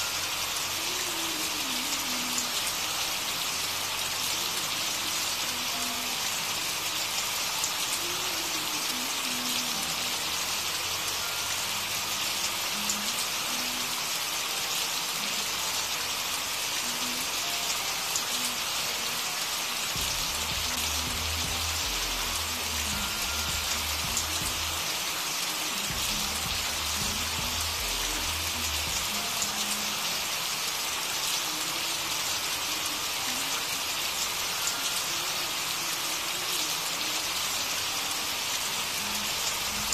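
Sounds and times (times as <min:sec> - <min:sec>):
rain hiss: 0:00.0 - 0:39.9
low bass notes: 0:20.0 - 0:24.8, 0:25.9 - 0:29.1.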